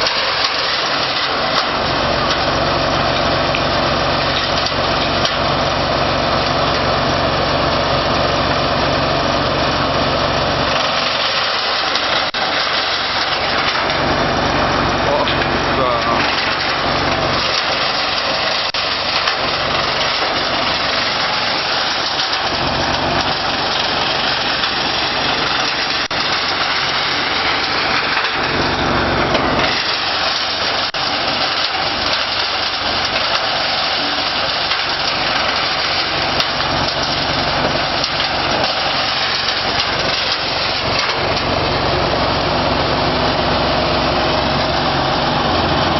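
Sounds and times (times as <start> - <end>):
grass cutter whirring: 0.0 - 45.9.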